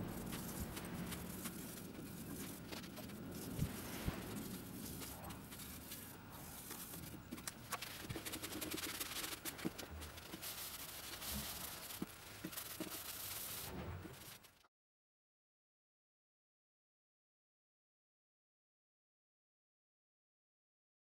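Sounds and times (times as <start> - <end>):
rag rubbing on wooden bowl: 0.0 - 14.4.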